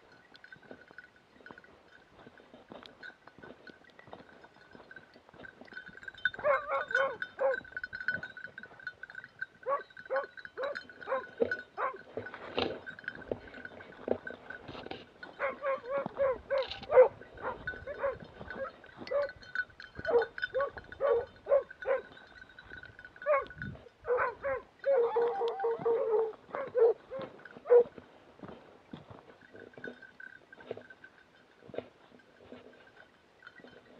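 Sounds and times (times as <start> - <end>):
dog barking in yelps: 6.4 - 7.6, 9.6 - 12.0, 15.4 - 19.4, 20.1 - 22.1, 23.2 - 23.5, 24.1 - 27.9.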